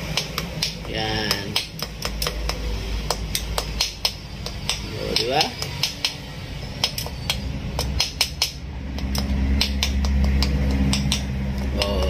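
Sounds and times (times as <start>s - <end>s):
socket wrench clicking: 6.8s - 12.0s.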